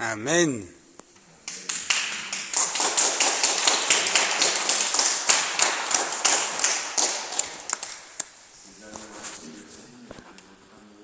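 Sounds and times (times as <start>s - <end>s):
crowd applauding: 1.4s - 8.3s.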